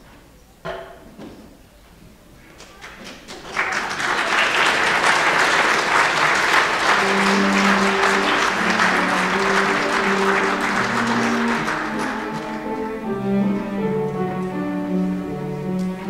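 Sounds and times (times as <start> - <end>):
audience applauding: 2.7 - 13.3
low instrumental notes: 6.6 - 16.0.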